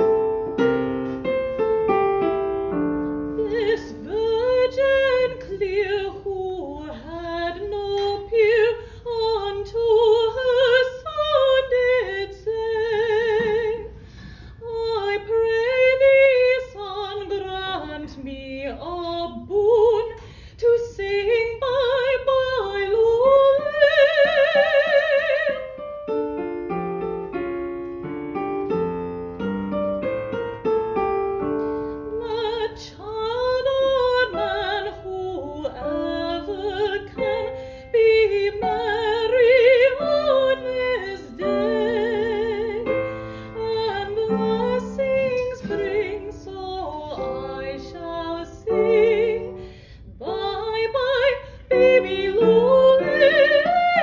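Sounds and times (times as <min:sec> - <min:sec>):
soprano singing with vibrato: 0:03.4 - 0:14.0, 0:14.6 - 0:25.8, 0:32.1 - 0:54.0
electronic keyboard playing piano: 0:25.8 - 0:31.8.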